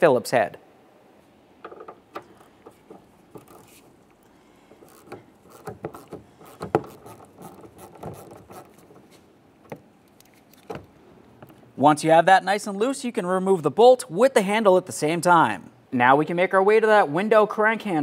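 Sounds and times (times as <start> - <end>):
hand ratchet clicking: 4.8 - 9.0
tool scraping plastic panel: 4.8 - 9.2.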